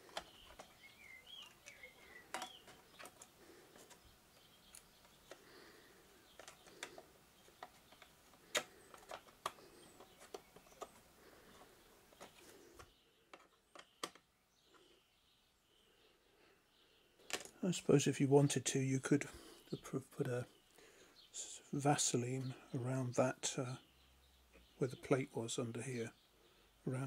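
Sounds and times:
faint clicks and taps: 6.3 - 14.9.

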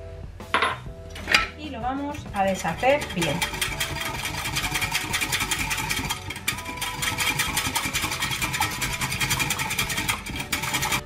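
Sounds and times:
whisk clicking against glass: 2.4 - 11.0.

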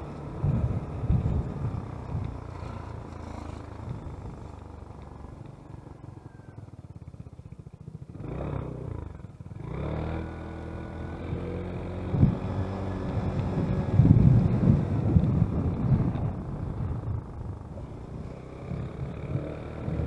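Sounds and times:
wind buffeting microphone: 0.0 - 5.2, 11.2 - 20.0
vehicle engine running: 0.0 - 20.0.

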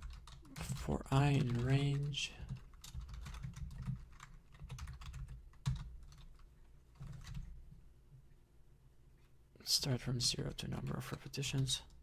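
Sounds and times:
typing on computer keyboard: 0.0 - 7.5.

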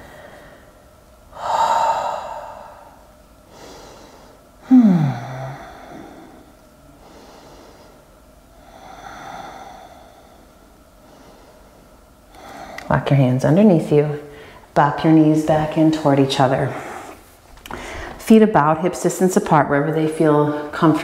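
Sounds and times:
woman breathing deeply: 0.0 - 12.9, 14.2 - 14.7, 16.6 - 18.2
woman sighing: 4.6 - 6.5.

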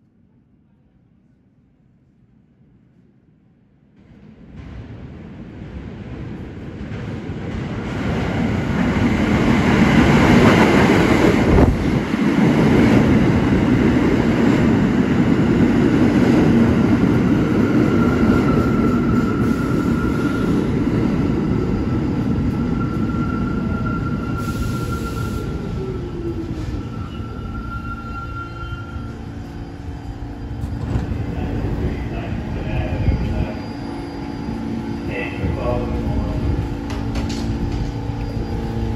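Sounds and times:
subway train rumbling: 0.0 - 38.9
high brake squeal: 17.8 - 20.6, 22.5 - 25.8, 26.6 - 35.7, 37.8 - 38.9.

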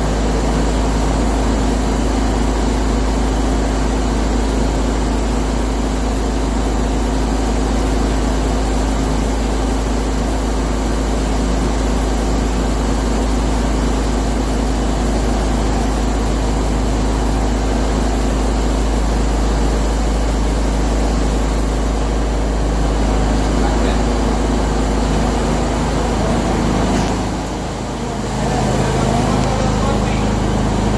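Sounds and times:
spray booth air handling drone: 0.0 - 30.9
spray gun hissing: 12.2 - 24.3.

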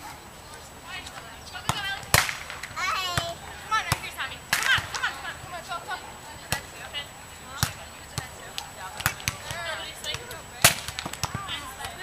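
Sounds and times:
volleyball slaps: 1.6 - 5.2, 6.4 - 6.8, 7.5 - 12.0.

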